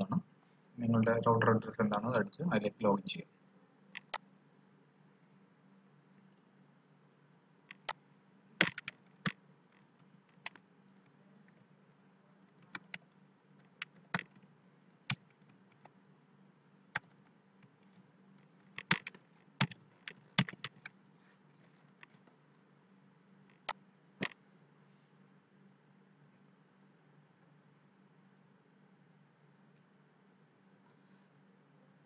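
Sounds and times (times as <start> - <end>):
faint low hum: 0.0 - 32.0
keystrokes on computer keyboard: 4.0 - 4.2, 8.6 - 10.6, 12.5 - 14.4, 17.0 - 17.3, 18.6 - 21.0.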